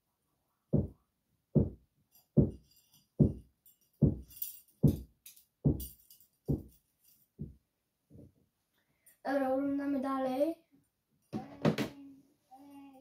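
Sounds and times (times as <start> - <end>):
deep kick drum beat: 0.7 - 1.0, 1.6 - 1.8, 2.4 - 2.6, 3.2 - 3.4, 4.0 - 5.0, 5.6 - 5.9
tambourine jingles: 2.1 - 7.5.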